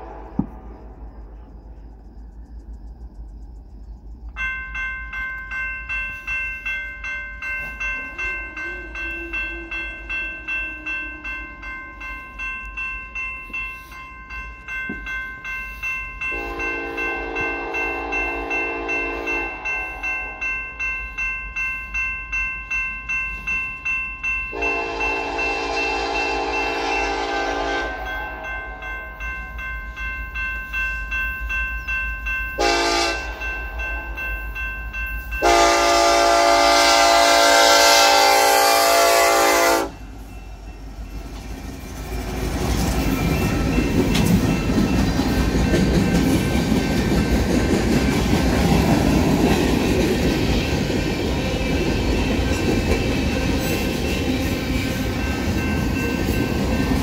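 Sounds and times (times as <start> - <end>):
railroad crossing bell ringing: 4.2 - 57.0
locomotive horn blasts: 16.3 - 20.5, 24.5 - 28.8, 32.6 - 33.4, 35.4 - 40.0.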